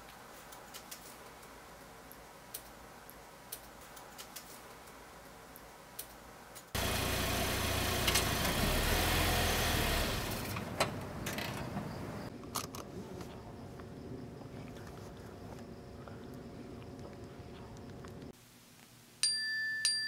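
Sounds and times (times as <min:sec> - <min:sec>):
car engine and road noise: 0:06.8 - 0:13.6.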